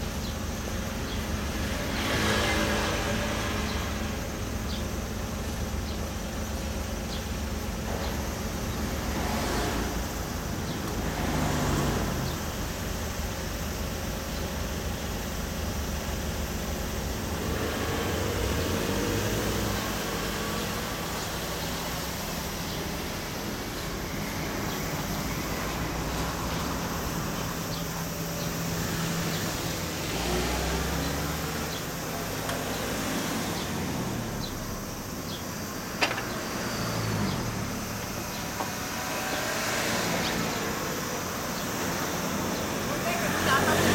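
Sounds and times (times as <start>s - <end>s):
motorcycle engine idling: 0.0s - 9.3s, 12.2s - 18.8s, 19.7s - 30.1s.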